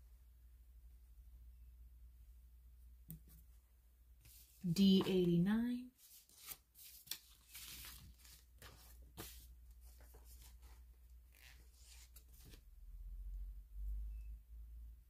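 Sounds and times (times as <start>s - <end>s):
paper sticker sheet rustling: 6.0s - 10.8s.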